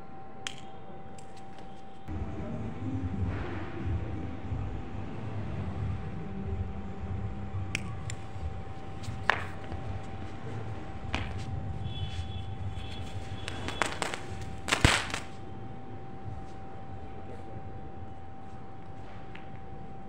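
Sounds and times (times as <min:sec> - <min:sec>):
firecracker cracking and crackling: 0:08.0 - 0:15.4.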